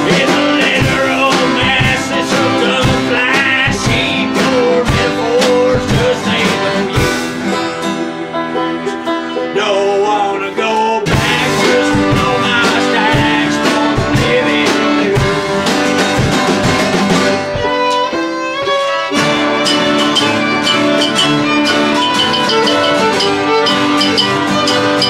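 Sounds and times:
strummed acoustic guitar: 0:00.0 - 0:25.0
accordion: 0:04.5 - 0:09.7, 0:11.5 - 0:25.0
fiddle bowed: 0:17.3 - 0:25.0.

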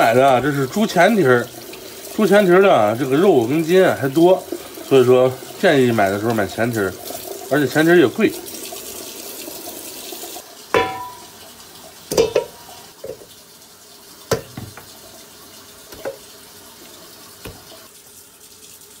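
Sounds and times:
tap water running into sink: 0:00.0 - 0:19.0
meat knocking in metal bowl: 0:10.8 - 0:11.3, 0:12.1 - 0:13.3, 0:14.3 - 0:14.9
metal bowl ringing: 0:10.8 - 0:11.4, 0:12.1 - 0:12.6.

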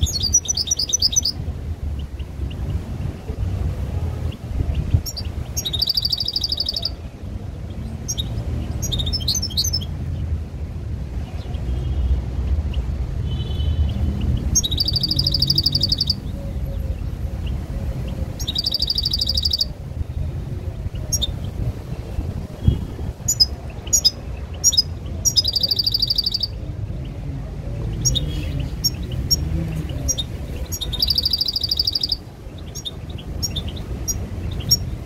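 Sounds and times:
bird trilling song: 0:00.0 - 0:01.4, 0:04.3 - 0:07.1, 0:07.7 - 0:09.9, 0:13.7 - 0:19.8, 0:20.8 - 0:21.6, 0:22.6 - 0:26.6, 0:27.9 - 0:35.0.

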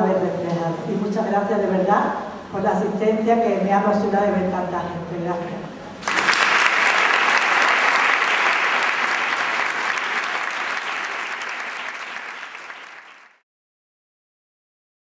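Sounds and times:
crowd applauding: 0:06.0 - 0:13.4.

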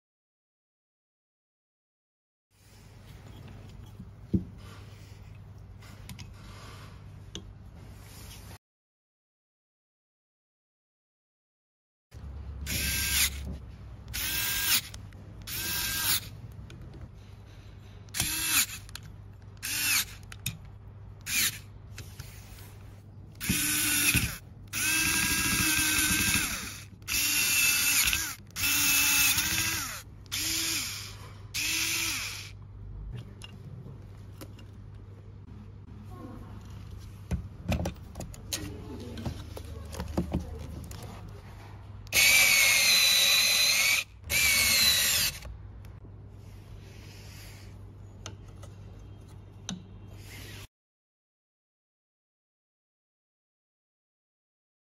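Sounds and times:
electric screwdriver spinning: 0:12.7 - 0:13.5, 0:14.1 - 0:16.3, 0:18.1 - 0:19.0, 0:19.6 - 0:20.4, 0:21.2 - 0:21.7, 0:23.4 - 0:32.6, 0:42.1 - 0:45.5.

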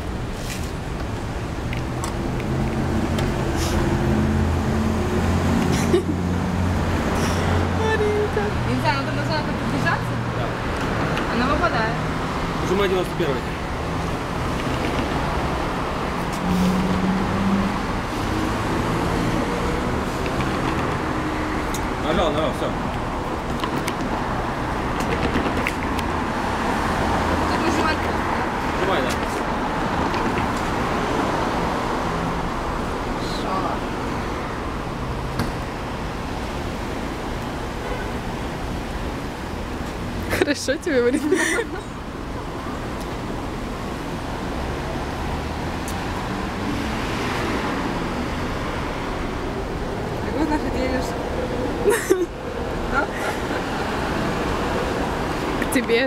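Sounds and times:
street traffic noise: 0:00.0 - 0:56.0.

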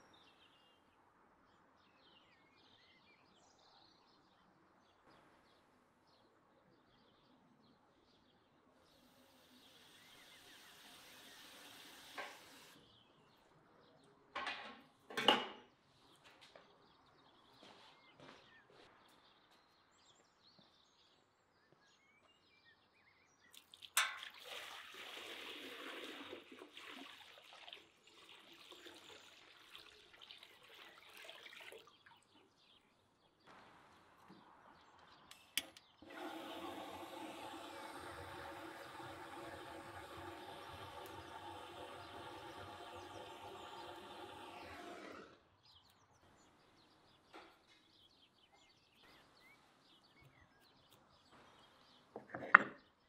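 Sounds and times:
gas torch hissing: 0:09.0 - 0:12.8, 0:35.3 - 0:45.4
water pouring into cauldron: 0:23.6 - 0:32.4, 0:36.0 - 0:45.4.

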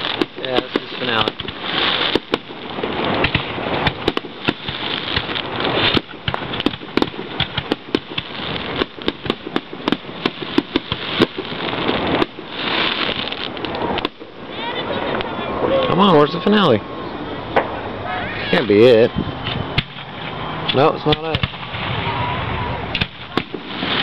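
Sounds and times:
firework shells bursting: 0:00.0 - 0:14.5, 0:19.4 - 0:22.2, 0:22.9 - 0:24.0
crackling hiss: 0:00.0 - 0:24.0.

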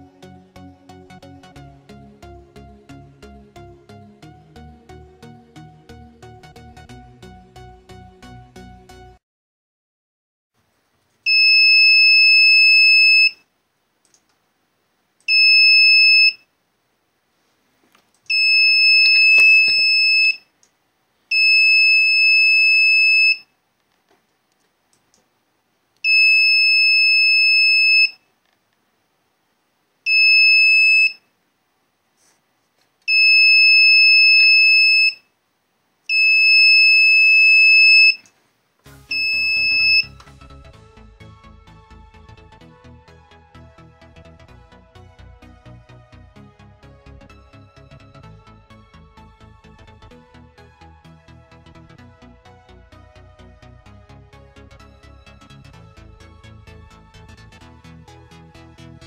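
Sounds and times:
piezo buzzer beeping: 0:39.1 - 0:40.2.

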